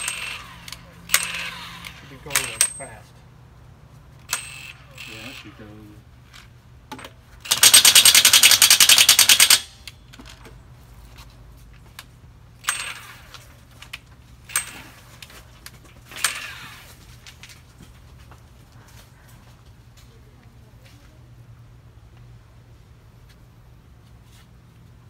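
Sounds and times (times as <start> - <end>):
impact wrench rattling: 0.0 - 3.0, 4.2 - 5.2, 6.3 - 10.4, 12.6 - 13.5, 14.5 - 15.3, 16.1 - 16.9.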